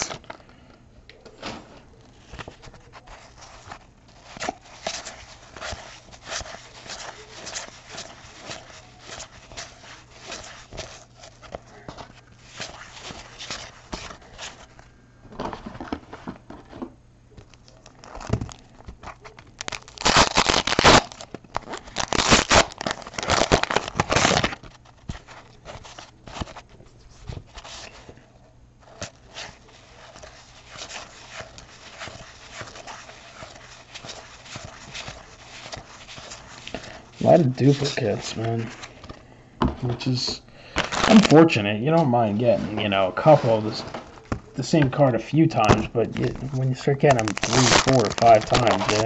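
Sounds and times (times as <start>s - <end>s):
trading cards rustling and clicking: 0.0s - 28.2s, 28.8s - 39.2s, 39.8s - 49.0s
wrapper crinkling and tearing: 2.0s - 14.8s, 17.4s - 28.1s, 28.8s - 39.1s, 40.6s - 41.6s, 45.6s - 49.0s.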